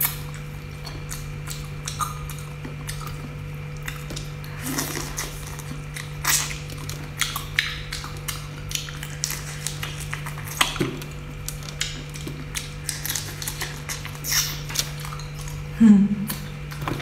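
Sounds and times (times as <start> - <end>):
steady low hum: 0.0 - 17.0
wet sucking and lip smacks: 12.7 - 15.4.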